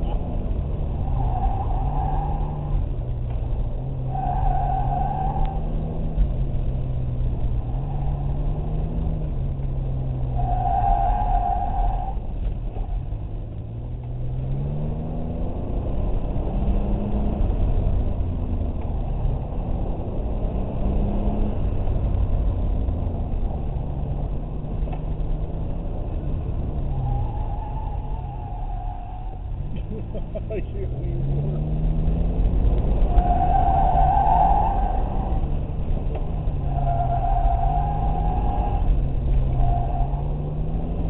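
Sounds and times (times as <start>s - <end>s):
road and wind rumble: 0.0s - 41.0s
engine revving: 29.6s - 41.0s.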